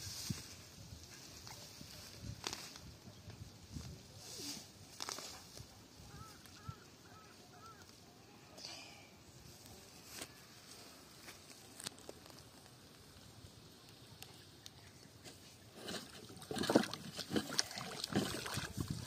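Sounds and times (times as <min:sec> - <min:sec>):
water splashing and sloshing: 0:15.3 - 0:19.0.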